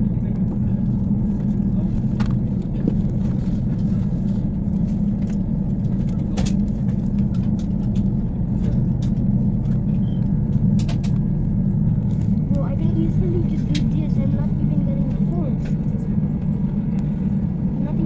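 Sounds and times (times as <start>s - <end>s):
airliner cabin rumble: 0.0s - 18.0s.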